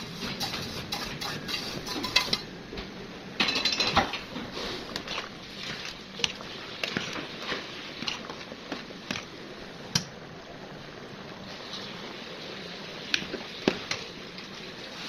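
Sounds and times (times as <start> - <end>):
metal spatula scraping a pot: 0.3 - 2.4.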